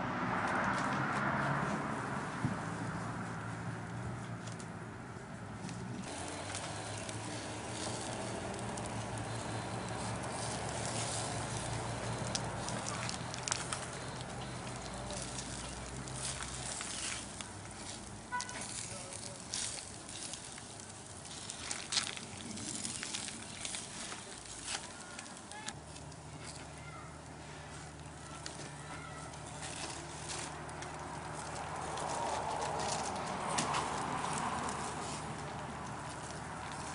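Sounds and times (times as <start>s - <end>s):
fire crackling: 4.2s - 36.9s.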